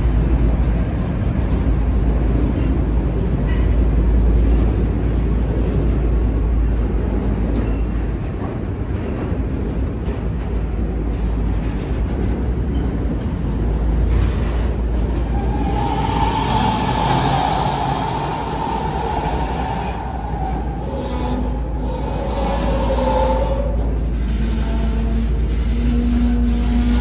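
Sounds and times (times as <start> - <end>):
freight train wheels rumbling on rail: 0.0 - 27.0
high wheel squeal: 15.2 - 27.0.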